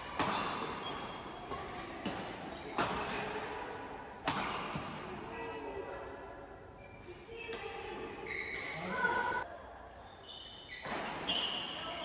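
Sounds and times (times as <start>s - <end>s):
rackets hitting shuttlecock: 0.0s - 5.3s, 10.7s - 11.7s.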